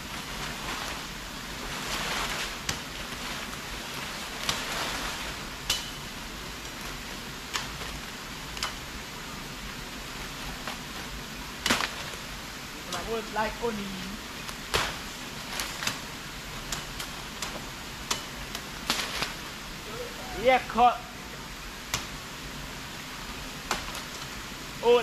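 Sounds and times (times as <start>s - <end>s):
rustle of leaves: 0.0s - 25.0s
machete chopping brush: 5.6s - 6.0s, 14.6s - 16.1s.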